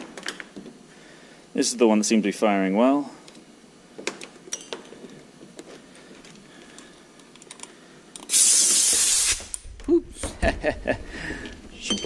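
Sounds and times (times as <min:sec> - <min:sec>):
light clicks of parts handled: 0:03.2 - 0:08.3
high-pressure air hissing: 0:08.3 - 0:09.6.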